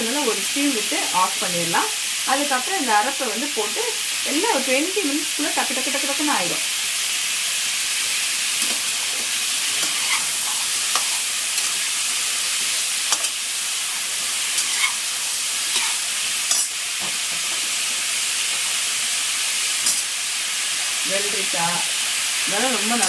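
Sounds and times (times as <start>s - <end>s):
vegetables sizzling in oil: 0.0s - 23.0s
steel spatula scraping pan: 9.7s - 11.8s, 14.5s - 15.0s.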